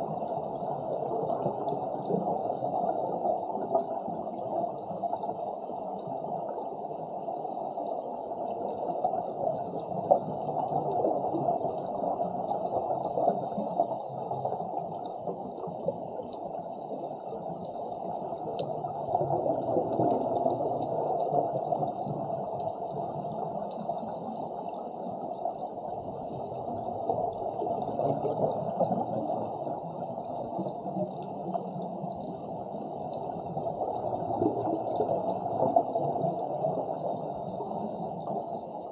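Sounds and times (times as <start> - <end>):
underwater rush of water: 0.0 - 38.9.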